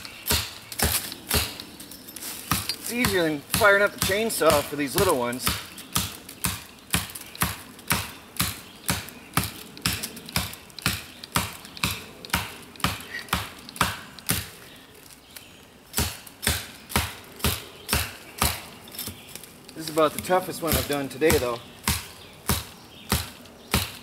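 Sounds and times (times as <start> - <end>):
tomahawk chopping into sapling: 0.0 - 1.6, 2.5 - 14.5.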